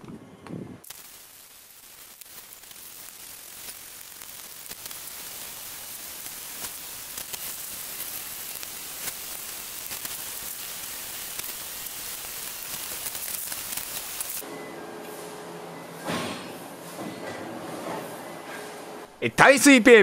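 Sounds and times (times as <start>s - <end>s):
wet sanding hiss with fine crackles: 0.8s - 14.4s.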